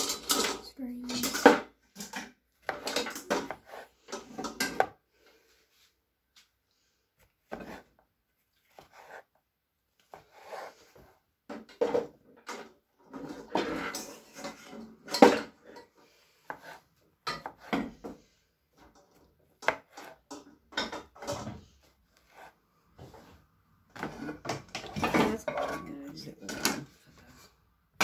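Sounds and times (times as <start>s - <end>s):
knife sawing through mushrooms: 10.1s - 11.0s.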